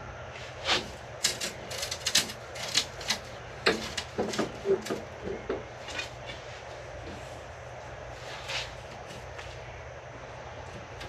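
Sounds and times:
metal bars clicking and clacking: 1.2s - 5.1s.

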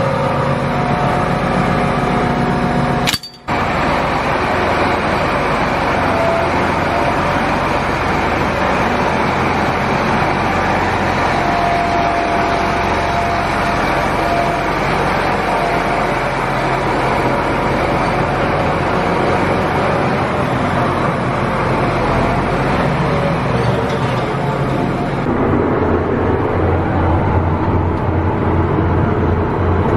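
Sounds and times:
tractor diesel engine running: 0.0s - 29.9s.

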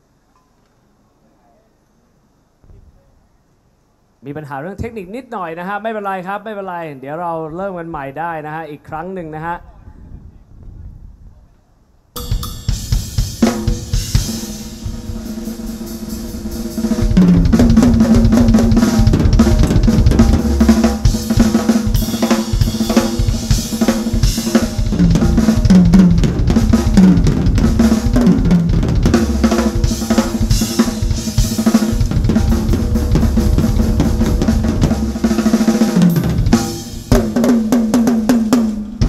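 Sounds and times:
backing music: 12.2s - 39.0s
drum kit playing: 12.2s - 39.0s.

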